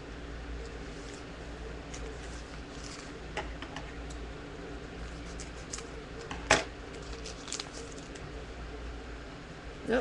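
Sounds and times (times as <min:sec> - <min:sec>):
cards and foil wrapper rustling: 0:00.9 - 0:03.2, 0:06.9 - 0:08.2.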